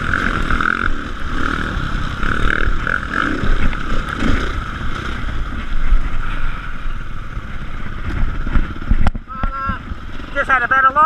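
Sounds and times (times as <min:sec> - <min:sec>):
dirt bike engine revving: 0:00.0 - 0:06.1
wind buffeting microphone: 0:00.0 - 0:10.4.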